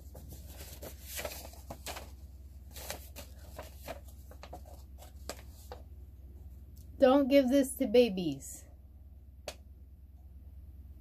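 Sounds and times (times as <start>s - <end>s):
paper rustling and crinkling: 0.0s - 5.9s.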